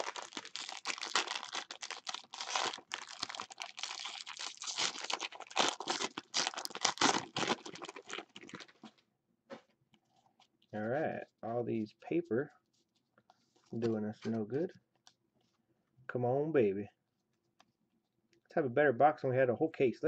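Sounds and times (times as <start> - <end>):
foil wrapper tearing and crinkling: 0.0 - 8.8.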